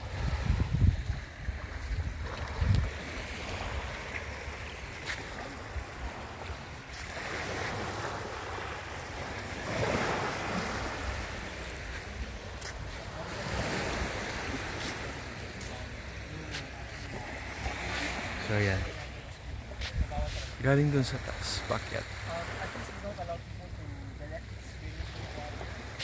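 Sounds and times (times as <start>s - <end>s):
wind buffeting microphone: 0.0s - 4.2s
small waves lapping on beach: 0.0s - 26.0s.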